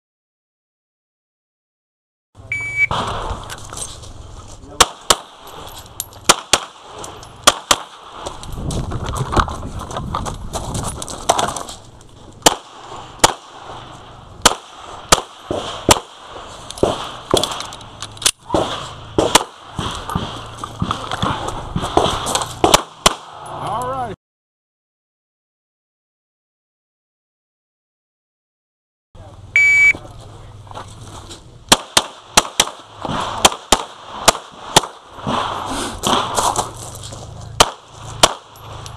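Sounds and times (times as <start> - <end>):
pistol shots: 4.8 - 8.4, 12.4 - 17.8, 18.4 - 23.4, 31.7 - 36.7, 37.6 - 38.9
scuffling movement: 8.3 - 12.4, 35.6 - 37.6.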